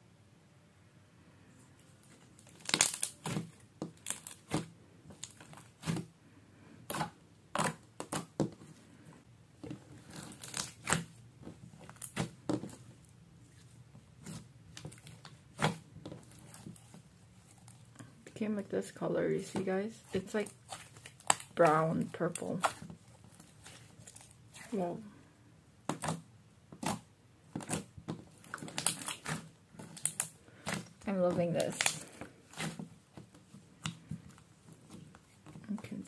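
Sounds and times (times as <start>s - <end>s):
slime popping and crackling: 2.1s - 6.1s, 6.9s - 8.6s, 9.6s - 12.9s, 14.2s - 18.0s, 19.4s - 24.9s, 25.8s - 36.0s.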